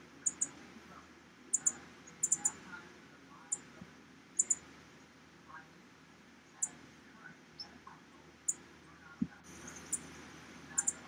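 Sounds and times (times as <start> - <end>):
faint low rumble: 0.0 - 11.0
small animal high chirps: 0.3 - 0.5, 1.6 - 2.6, 4.4 - 4.6, 10.8 - 11.0.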